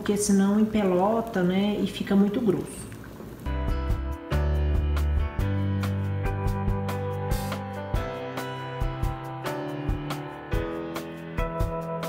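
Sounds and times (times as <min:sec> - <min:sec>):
instrumental music with beat: 0:03.5 - 0:12.0.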